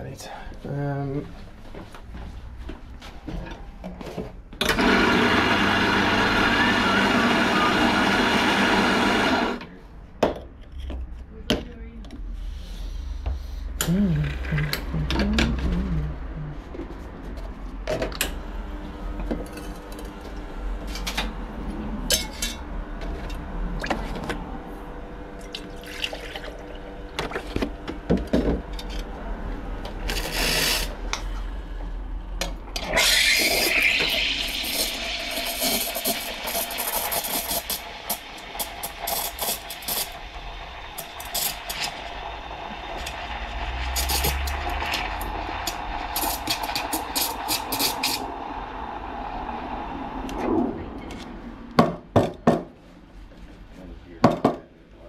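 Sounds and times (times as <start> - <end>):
espresso machine hum: 4.6 - 9.6, 18.2 - 31.2, 32.8 - 51.5
steam wand steaming milk: 4.8 - 9.6, 30.0 - 31.0, 32.9 - 50.4
steam blast: 32.9 - 51.7.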